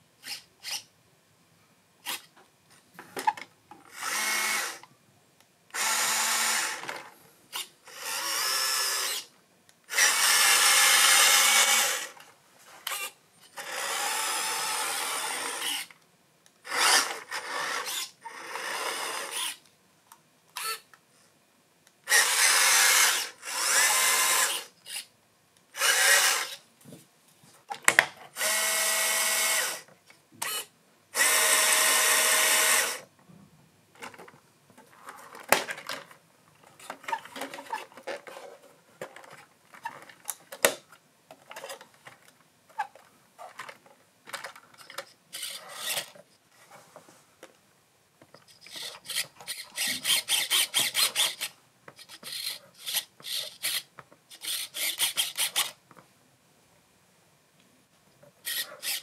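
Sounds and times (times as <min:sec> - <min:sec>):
rc car motor whining: 0:05.8 - 0:07.0, 0:07.9 - 0:09.3, 0:09.9 - 0:12.2, 0:12.9 - 0:15.9, 0:16.6 - 0:19.6, 0:22.1 - 0:25.1, 0:25.8 - 0:26.6, 0:28.4 - 0:33.0, 0:48.6 - 0:55.8, 0:58.4 - 0:59.0.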